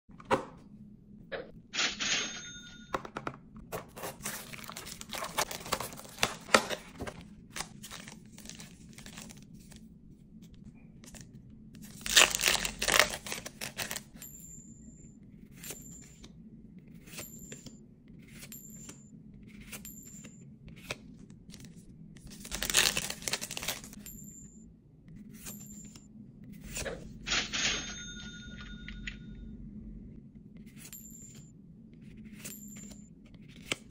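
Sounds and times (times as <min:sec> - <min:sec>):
shrink-wrap crinkling and tearing: 0:04.0 - 0:09.5, 0:11.8 - 0:14.1, 0:22.3 - 0:24.0
foil pack ripping open: 0:04.1 - 0:06.9, 0:11.9 - 0:14.0, 0:22.4 - 0:23.9
short high ding: 0:27.8 - 0:29.2.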